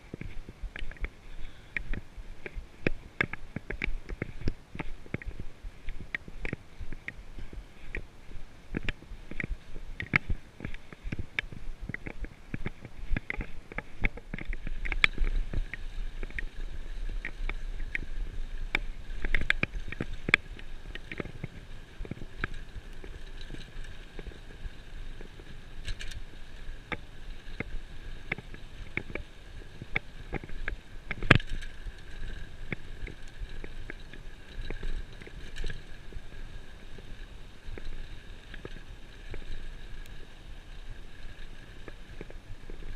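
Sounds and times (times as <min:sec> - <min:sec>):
bicycle rattling and knocking: 0:00.0 - 0:42.9
bicycle tyre rumble: 0:00.0 - 0:42.9.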